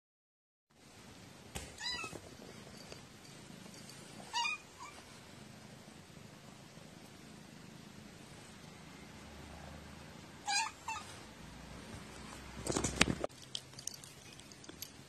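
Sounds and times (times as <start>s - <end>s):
cat meowing: 10.4s - 11.1s.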